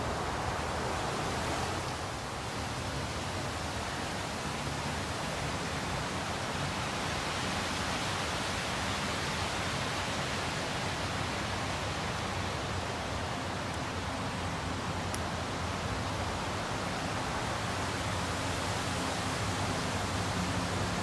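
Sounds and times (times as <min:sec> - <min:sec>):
steady rushing noise: 0:00.0 - 0:21.0.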